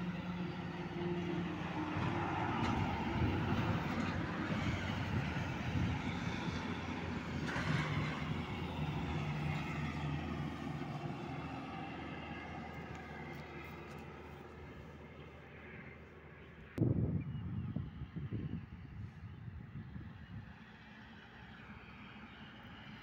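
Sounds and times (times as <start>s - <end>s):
truck diesel engine droning: 0.0s - 16.8s
tyres rumbling on road: 0.0s - 16.8s.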